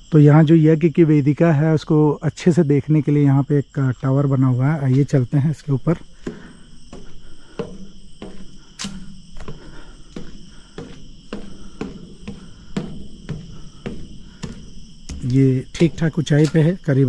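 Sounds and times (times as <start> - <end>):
insects droning: 0.0 - 17.0
footsteps climbing stairs: 4.4 - 17.0.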